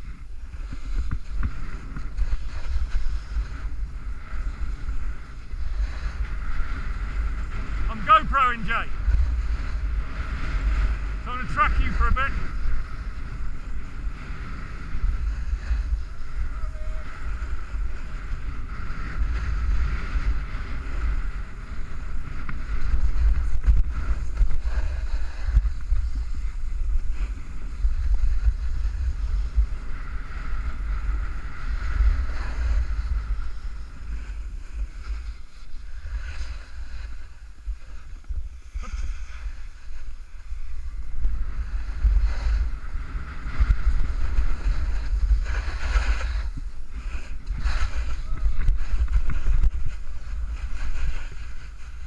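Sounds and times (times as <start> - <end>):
snowboard sliding over snow: 0.0 - 52.0
wind buffeting microphone: 0.0 - 52.0.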